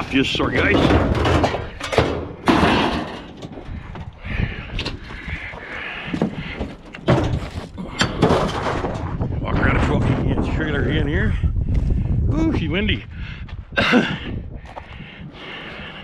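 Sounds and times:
bangs and thuds on sheet metal: 0.6s - 3.4s.

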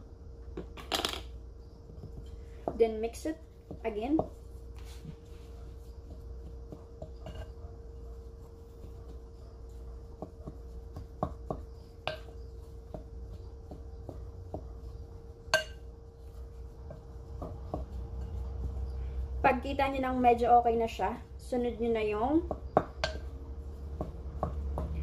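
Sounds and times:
faint steady hum: 0.0s - 25.0s
spoon tapping glass bowl: 15.5s - 15.9s, 22.8s - 23.3s.

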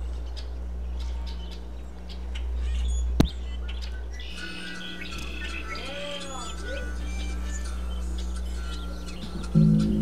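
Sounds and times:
faint bird-like chirps: 0.0s - 10.0s
steady low hum: 0.0s - 10.0s
high held tones: 4.2s - 10.0s.

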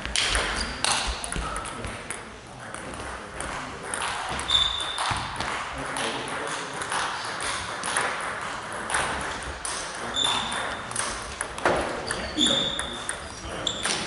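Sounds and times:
brief high squeak: 10.1s - 10.6s, 12.1s - 12.9s.

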